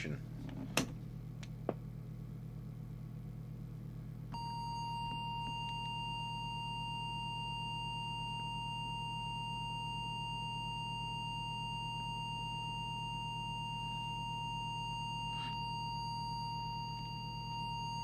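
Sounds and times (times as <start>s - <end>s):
low steady hum: 0.0s - 18.0s
steady test tone: 4.4s - 18.0s.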